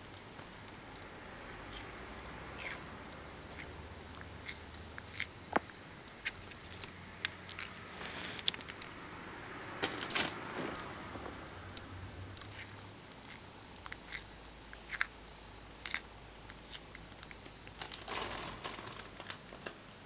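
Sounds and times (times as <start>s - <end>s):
tortoise beak crunching food: 1.7s - 5.4s, 6.2s - 9.0s, 11.8s - 17.9s.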